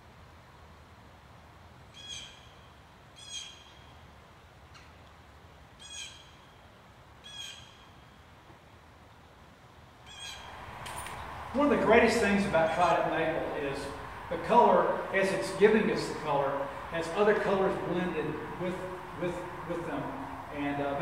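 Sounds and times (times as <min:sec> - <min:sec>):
bird calling: 0:10.1 - 0:21.0.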